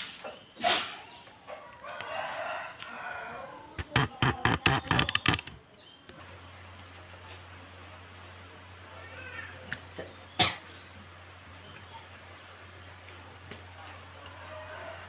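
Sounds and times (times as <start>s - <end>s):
rooster crowing: 1.8s - 3.7s, 14.2s - 15.0s.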